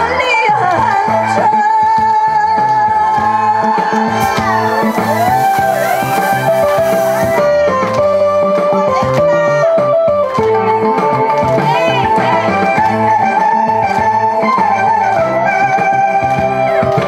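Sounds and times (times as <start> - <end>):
woman singing: 0.0 - 9.8, 10.8 - 13.7
trot music through loudspeakers: 0.0 - 17.0
fog machine hissing: 4.2 - 7.6.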